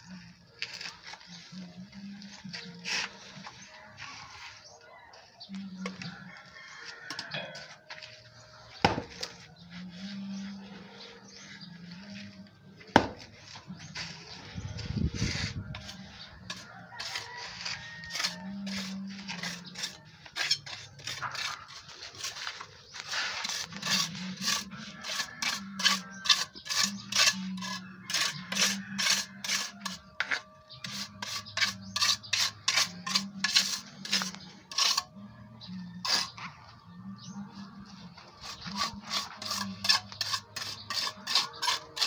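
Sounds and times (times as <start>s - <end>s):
steel trowel scraping wet cement: 0.1s - 4.4s, 13.7s - 35.1s, 35.9s - 36.5s, 38.3s - 42.0s.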